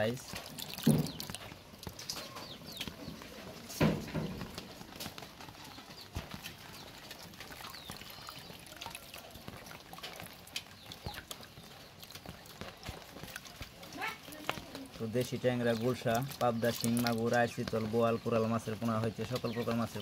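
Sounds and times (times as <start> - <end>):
water dripping into metal basin: 0.0 - 5.2, 6.0 - 20.0.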